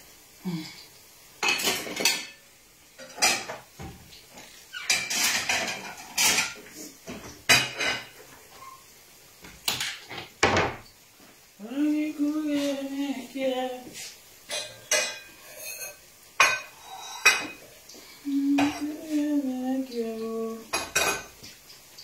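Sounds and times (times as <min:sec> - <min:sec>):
plates and cutlery clattering: 0:01.4 - 0:02.4, 0:03.0 - 0:08.8, 0:09.6 - 0:10.8, 0:14.5 - 0:17.7, 0:18.6 - 0:19.0, 0:20.7 - 0:21.6.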